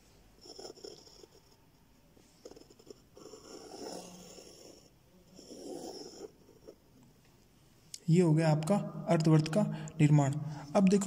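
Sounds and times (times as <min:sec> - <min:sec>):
heavy nasal breathing: 0:09.7 - 0:10.8.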